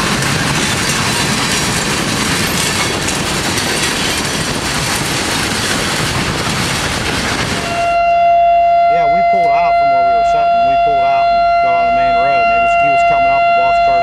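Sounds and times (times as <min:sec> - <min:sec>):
freight cars clattering and grinding: 0:00.0 - 0:07.9
steady high tone: 0:07.6 - 0:14.0.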